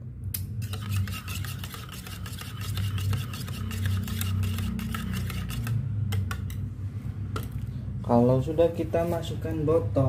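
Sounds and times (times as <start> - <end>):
low steady hum: 0.0 - 10.0
metal spoon stirring in mug: 0.6 - 6.6.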